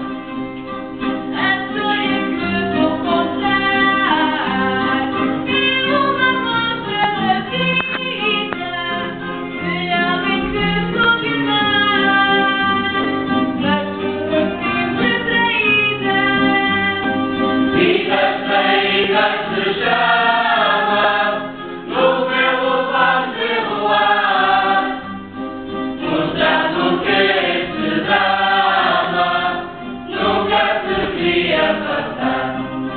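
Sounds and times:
instrumental accompaniment: 0.0s - 32.9s
men and women singing chorus: 17.7s - 25.2s, 26.0s - 32.9s.

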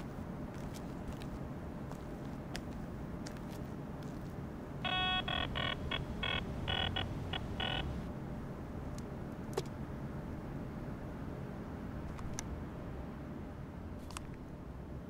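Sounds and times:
low background rumble: 0.0s - 15.0s
metal detector beeping: 4.8s - 8.0s.

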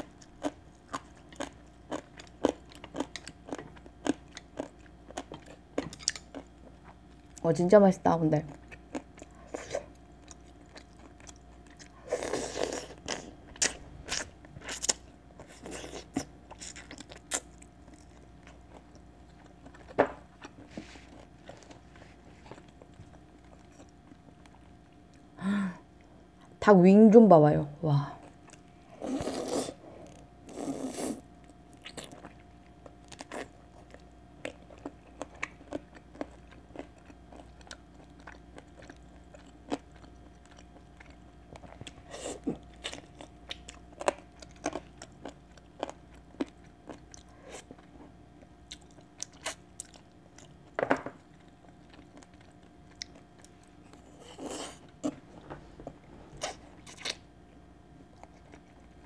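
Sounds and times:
biting and chewing: 0.0s - 7.4s, 31.4s - 59.0s.

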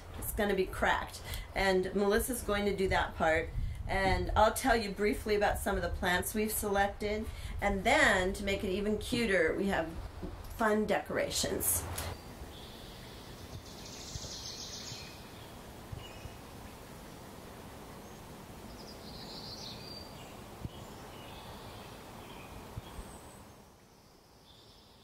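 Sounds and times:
birds chirping and trilling: 12.2s - 16.4s, 18.0s - 25.0s.

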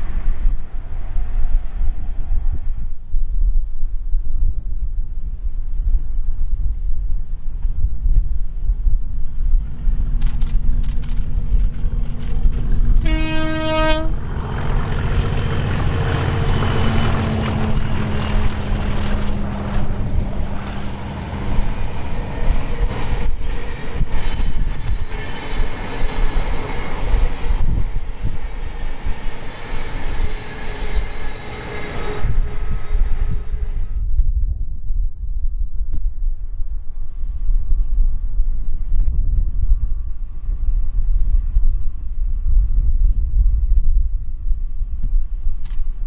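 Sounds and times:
diesel locomotive engine drone: 0.0s - 34.4s
train wheels clattering on rails: 10.2s - 33.6s
train horn blast: 13.0s - 22.2s.

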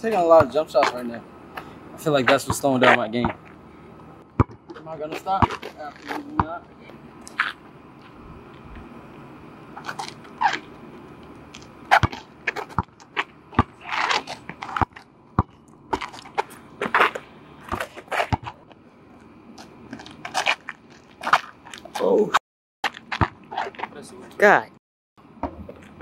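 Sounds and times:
basketball bouncing on asphalt: 0.1s - 1.0s, 1.6s - 3.6s, 4.2s - 6.7s, 9.8s - 18.8s, 22.8s - 23.9s, 25.2s - 26.0s.

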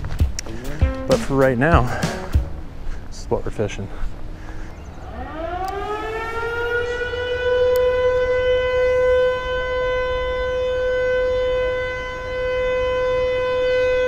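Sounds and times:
warning siren steady tone: 4.7s - 14.0s.

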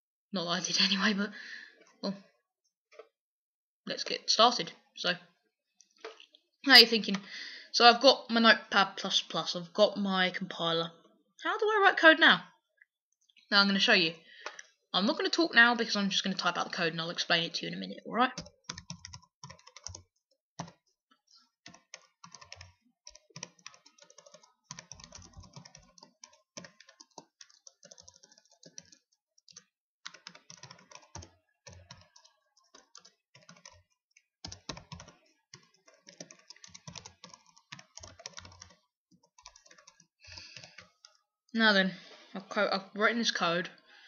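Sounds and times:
typing on computer keyboard: 18.3s - 21.0s, 21.6s - 41.2s.

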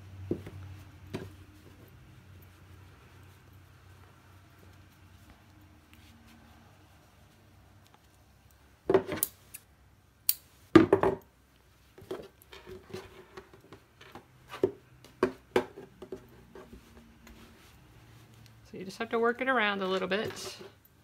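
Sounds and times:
fabric rustling: 0.0s - 8.8s, 11.4s - 21.0s
knocks on wooden tabletop: 10.8s - 11.2s.

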